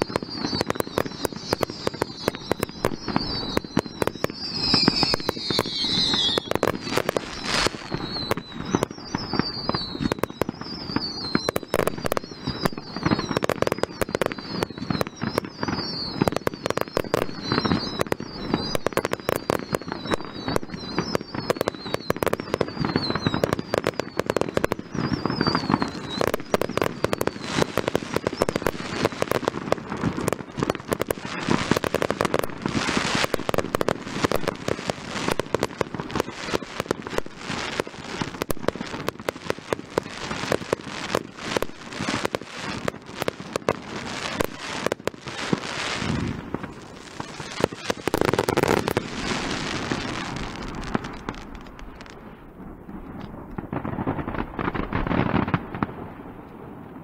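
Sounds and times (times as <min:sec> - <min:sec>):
fireworks bangs and crackling: 0:00.0 - 0:57.0
short falling whistles: 0:01.4 - 0:11.6.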